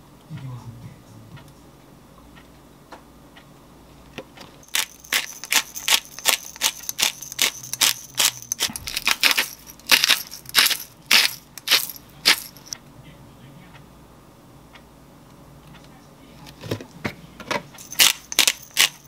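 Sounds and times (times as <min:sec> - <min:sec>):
pepper shaker rattling: 0:04.6 - 0:12.8, 0:17.8 - 0:19.0
salt grinder grinding: 0:04.6 - 0:12.8, 0:17.8 - 0:19.0.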